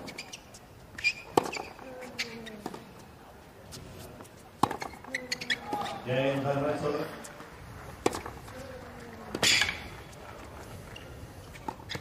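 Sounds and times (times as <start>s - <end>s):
shoes squeaking on court: 0.0s - 3.1s, 3.7s - 6.5s, 7.1s - 12.0s
rackets hitting tennis ball: 1.0s - 2.9s, 3.8s - 11.0s.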